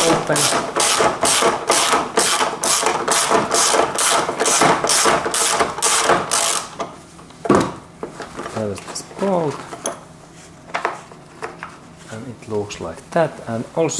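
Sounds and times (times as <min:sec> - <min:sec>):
ratchet wrench clicking: 0:05.4 - 0:06.7.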